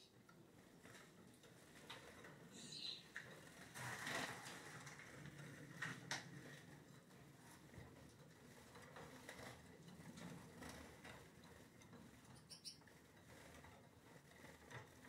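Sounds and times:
finches hopping and fluttering: 2.0 - 3.2, 12.1 - 13.6.

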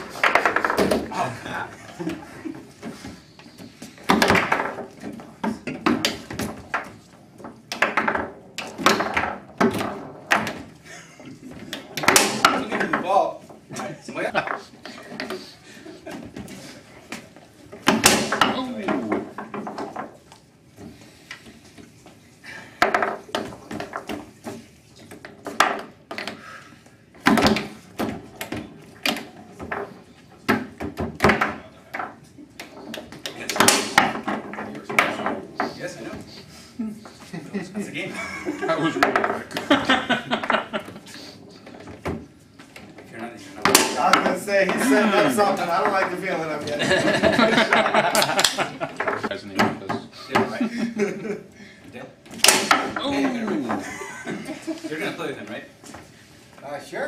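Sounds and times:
rods banging and rattling: 0.0 - 1.3, 41.6 - 50.6
foosball clacks and thunks: 0.0 - 10.8, 11.4 - 22.0, 22.8 - 26.4, 27.1 - 36.3, 38.9 - 50.6, 52.1 - 53.9.

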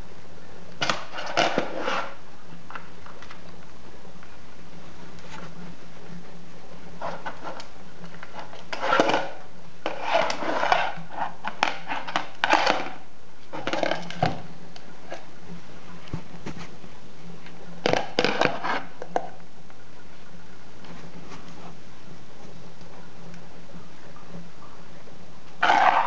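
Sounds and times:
plastic lid scraping on floor: 0.8 - 2.2, 7.0 - 14.5.

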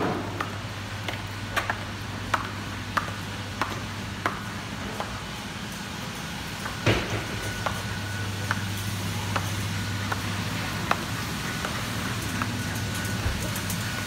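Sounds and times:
heels clicking on tiled floor: 0.0 - 5.2.

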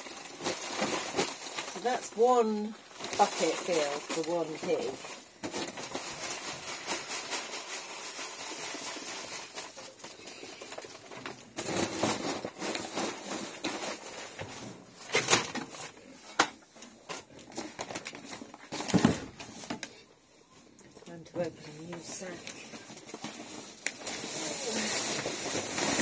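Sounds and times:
paper sack rustling: 0.0 - 16.2, 21.7 - 26.0.

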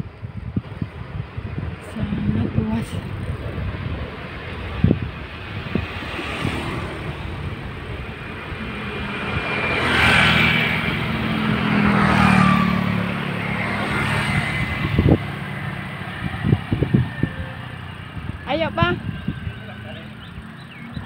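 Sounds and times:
traffic noise: 0.0 - 21.0
motorcycle engine passing: 4.9 - 21.0.

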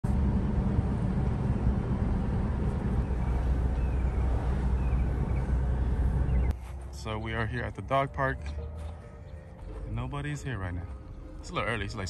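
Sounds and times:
road and wind rumble in car: 0.0 - 6.9.

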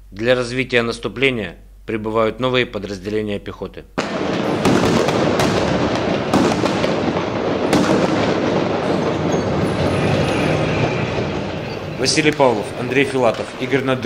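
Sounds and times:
gunfire cracks: 4.0 - 9.4
tank engines and tracks clattering: 8.6 - 14.0.

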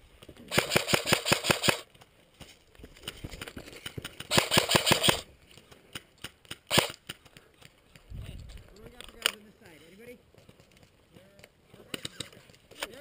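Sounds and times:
airsoft gun rapid burst: 0.5 - 1.8, 4.3 - 5.2, 6.7 - 7.0.

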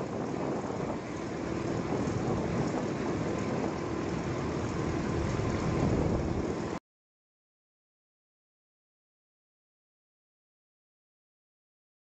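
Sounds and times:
aircraft engines droning: 0.1 - 6.8.

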